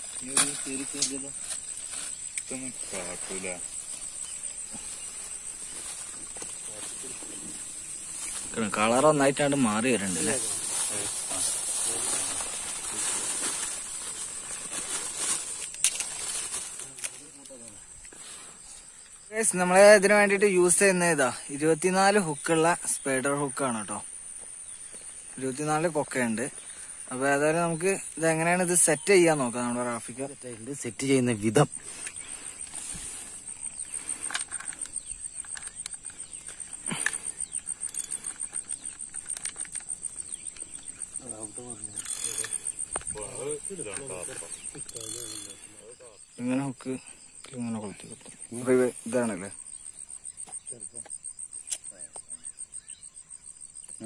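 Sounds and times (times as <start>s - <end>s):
insect trill: 0.0s - 54.0s
sharp click: 51.6s - 52.3s.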